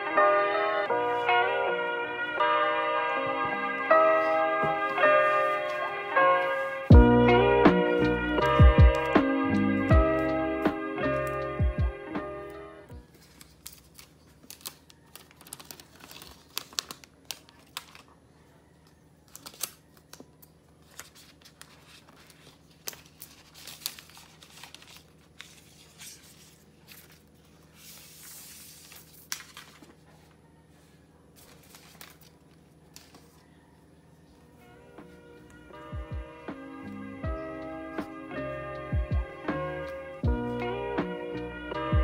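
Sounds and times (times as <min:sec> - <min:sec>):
cardboard and paper rustling: 0:04.2 - 0:06.9, 0:13.0 - 0:18.4, 0:19.3 - 0:33.7.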